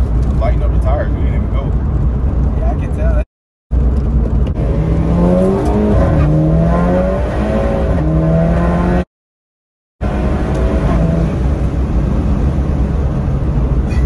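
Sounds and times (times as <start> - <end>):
car engine accelerating: 3.7 - 9.1, 10.0 - 13.9.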